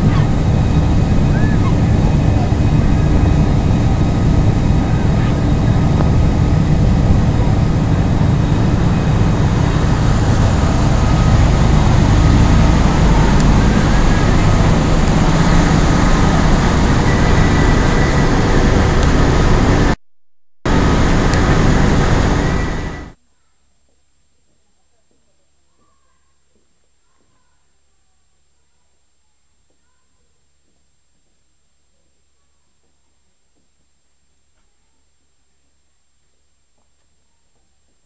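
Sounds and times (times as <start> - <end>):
motorboat engine running: 0.0 - 20.0, 20.7 - 23.2
water rushing in wake: 0.0 - 20.0, 20.7 - 23.2
wind on microphone: 0.0 - 20.0.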